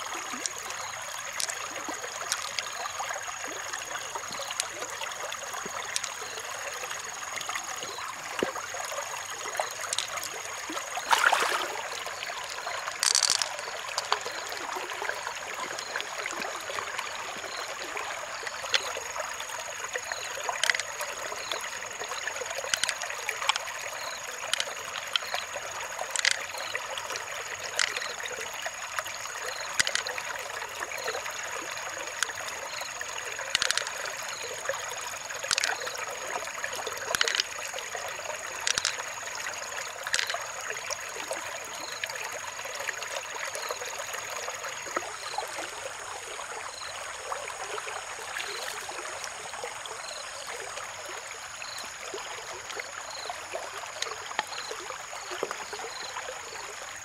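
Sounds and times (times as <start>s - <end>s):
stream water trickling: 0.0s - 57.0s
shells clicking: 13.0s - 14.1s, 33.6s - 33.9s, 38.7s - 39.0s.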